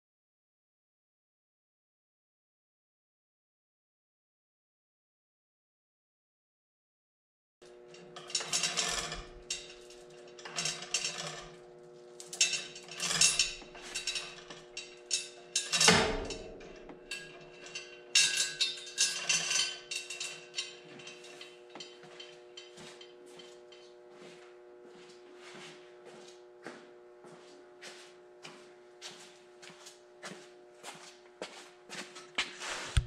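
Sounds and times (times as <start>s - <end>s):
steady hum: 7.6s - 29.4s
hoist chain rattling and clanking: 7.9s - 24.0s
heavy clunk: 15.8s - 16.9s.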